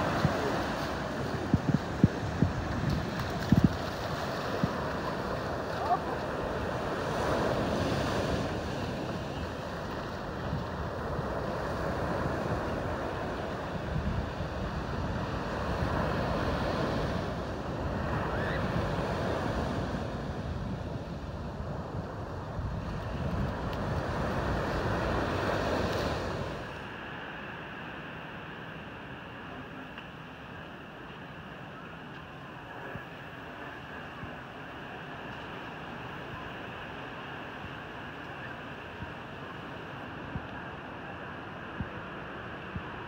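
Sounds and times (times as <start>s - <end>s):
wind buffeting microphone: 0.0s - 26.8s
ocean surf breaking: 0.0s - 32.0s.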